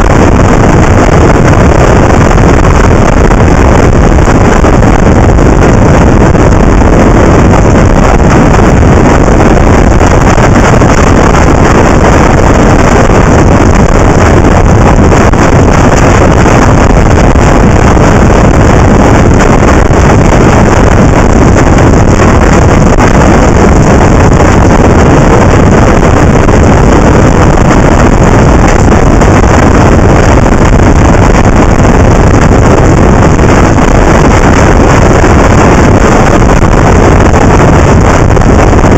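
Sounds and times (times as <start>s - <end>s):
motorcycle noise: 0.0s - 38.9s
wind rush on microphone: 0.0s - 38.9s.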